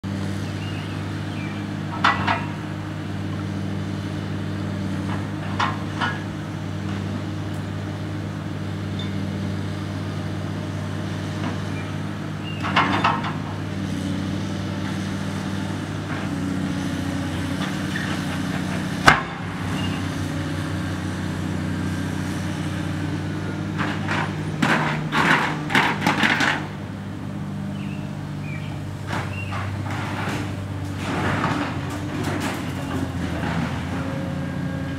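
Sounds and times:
excavator diesel engine running: 0.0 - 34.9
debris crashing and clanking: 29.2 - 33.9.

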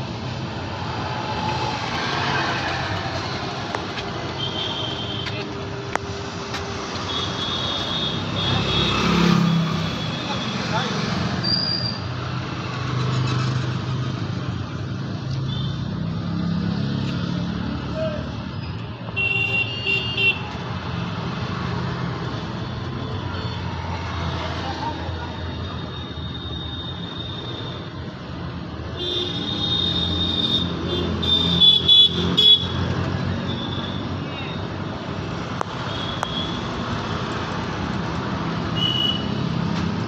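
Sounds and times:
vehicle engines running: 0.0 - 7.1
motorcycle and car engines passing: 0.2 - 4.4, 8.2 - 18.5, 36.6 - 40.0.

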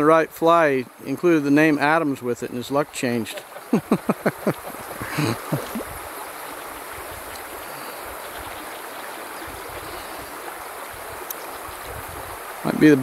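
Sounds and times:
creek water flowing: 0.0 - 13.0.

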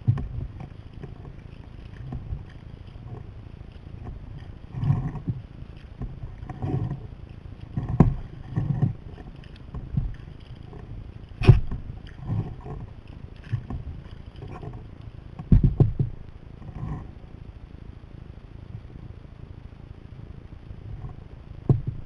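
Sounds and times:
paddle splashing in water: 0.0 - 16.8
knocks against kayak: 11.4 - 11.8, 15.4 - 16.2.

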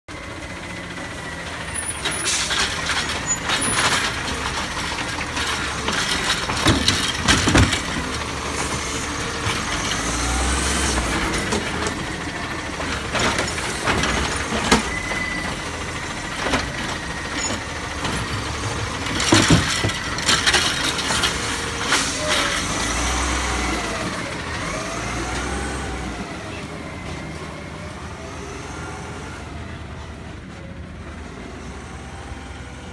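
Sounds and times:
diesel engine running and revving: 0.1 - 32.9
carts banging against hopper: 2.3 - 10.0, 12.8 - 15.6, 16.2 - 22.8.

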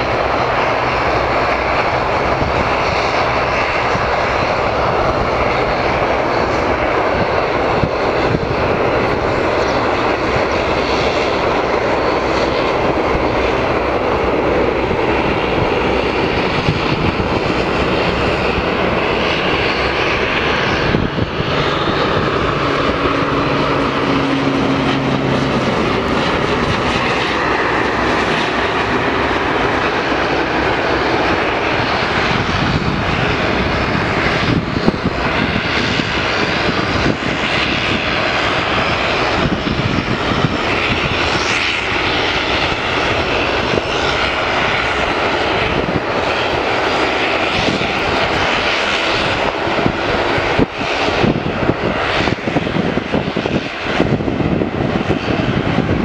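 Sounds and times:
turboprop engines droning: 0.0 - 56.0
low hum: 5.3 - 39.0.

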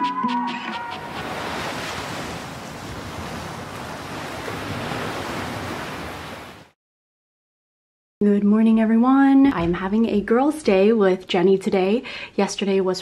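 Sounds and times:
waves washing onto sandy beach: 1.0 - 6.7.

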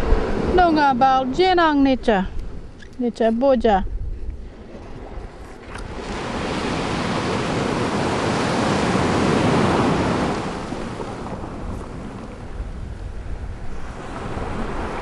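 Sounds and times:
rushing surf-like wash: 0.0 - 1.5, 5.6 - 15.0.

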